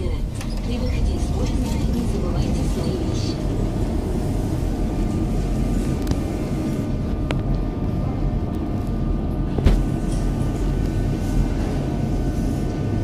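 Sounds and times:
low rumble of metro station: 0:00.0 - 0:13.0.

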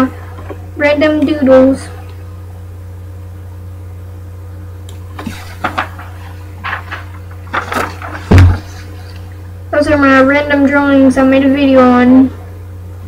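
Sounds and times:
steady low hum: 0:00.0 - 0:13.0
paper rustling: 0:05.1 - 0:09.4
dull thump: 0:07.6 - 0:09.0.

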